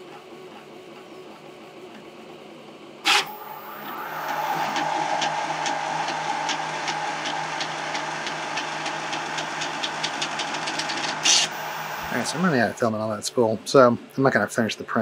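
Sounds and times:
printer motor whine: 0:03.0 - 0:13.2.

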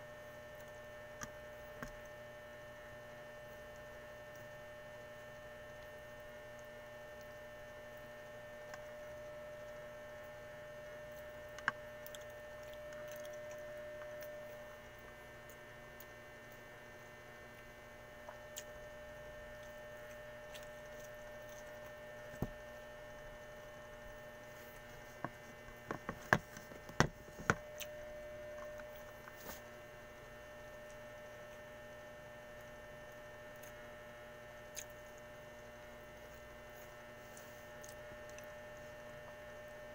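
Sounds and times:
faint electrical hum: 0:00.0 - 0:39.9
soft clicks and taps of eating: 0:00.6 - 0:02.2, 0:11.1 - 0:15.6.

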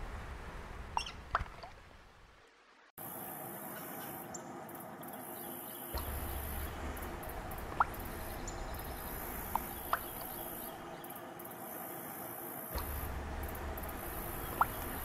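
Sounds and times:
steady high hiss: 0:03.0 - 0:15.0
low rumble: 0:06.0 - 0:11.0, 0:12.8 - 0:15.0.

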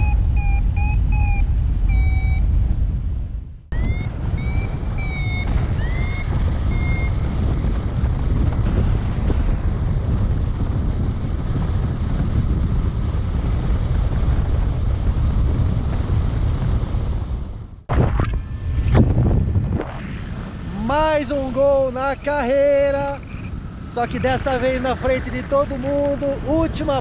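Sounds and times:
high electronic beeps: 0:00.0 - 0:02.5, 0:03.7 - 0:07.3, 0:17.9 - 0:20.0, 0:23.0 - 0:23.6
loud wind over microphone: 0:00.0 - 0:27.0.

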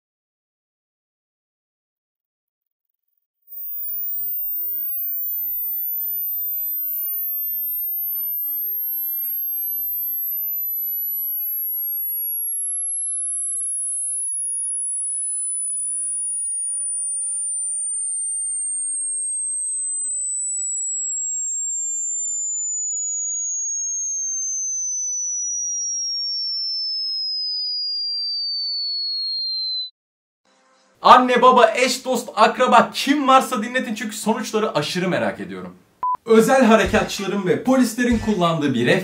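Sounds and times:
sine tone sweeping down: 0:03.4 - 0:29.9.

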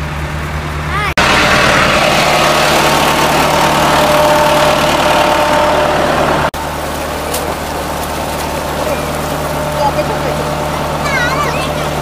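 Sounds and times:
pump engine drone: 0:00.0 - 0:12.0
water rushing into tank: 0:01.2 - 0:12.0.

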